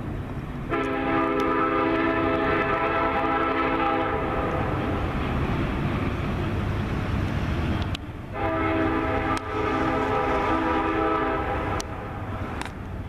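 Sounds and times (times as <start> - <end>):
train rumble: 0.0 - 13.0
locomotive air horn: 0.7 - 4.7, 8.3 - 12.3.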